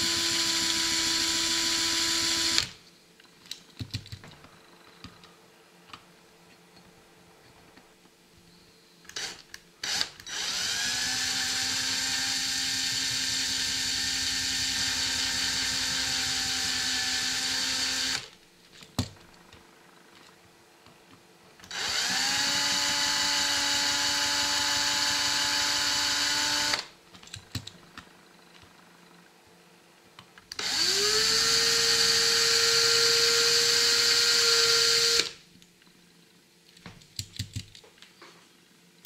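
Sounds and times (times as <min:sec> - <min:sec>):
cordless drill whining: 0:00.0 - 0:02.8, 0:09.1 - 0:18.3, 0:21.6 - 0:26.9, 0:30.5 - 0:35.4.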